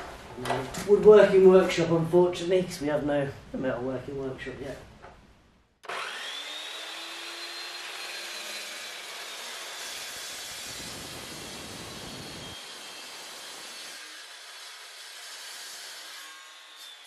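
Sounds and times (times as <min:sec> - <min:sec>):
chop saw whining: 0:05.8 - 0:17.0
saw blade cutting steel tube: 0:05.9 - 0:17.0.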